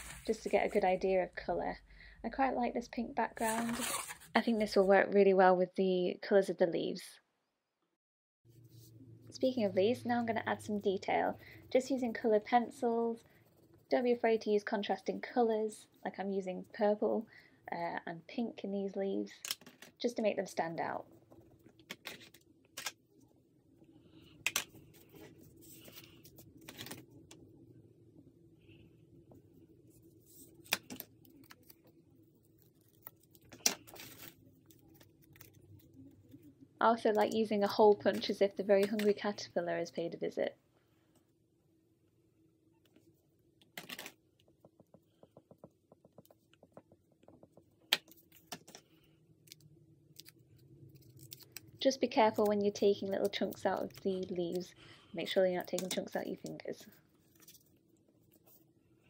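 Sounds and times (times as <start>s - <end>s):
paper rustling: 0.0s - 0.8s, 24.5s - 27.0s, 32.6s - 35.9s.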